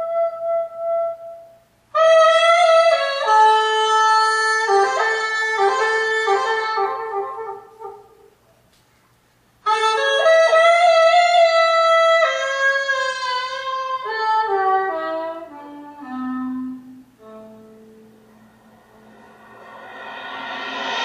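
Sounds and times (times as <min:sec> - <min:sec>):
solo melody through speakers: 0:09.7 - 0:19.0.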